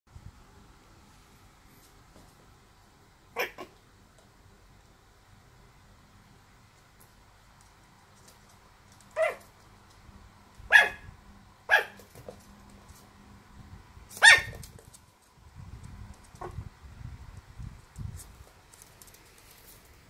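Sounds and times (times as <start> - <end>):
dog play-barking: 3.3 - 3.8, 9.1 - 9.6, 10.6 - 12.4, 14.1 - 14.8
faint scuffling: 17.6 - 20.0.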